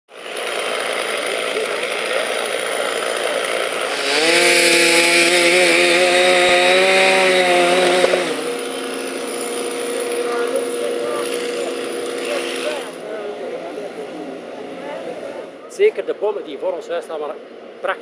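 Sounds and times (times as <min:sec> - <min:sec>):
chainsaw cutting into tree trunk: 0:00.1 - 0:13.1
chainsaw idling: 0:00.1 - 0:15.6.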